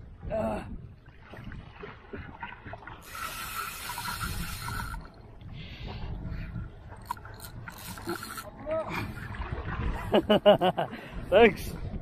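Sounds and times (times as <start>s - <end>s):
wind and water rumble: 0.0s - 12.0s
fishing reel drag buzzing: 3.0s - 5.2s, 7.0s - 8.5s.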